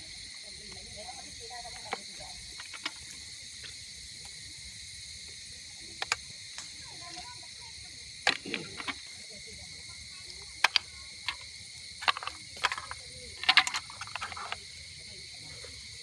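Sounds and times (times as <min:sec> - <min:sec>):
snail shells clicking on metal tray: 0:01.6 - 0:03.2, 0:10.3 - 0:14.7.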